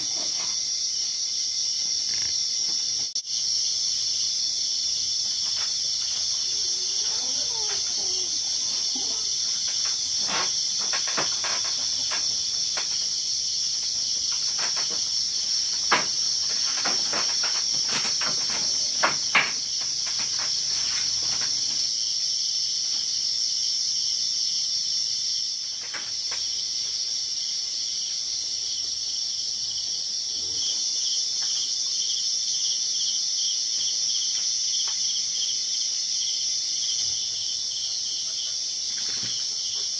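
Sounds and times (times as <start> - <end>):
insects chorus: 0.0 - 39.9
sharp clicks and knocks: 14.2 - 21.8.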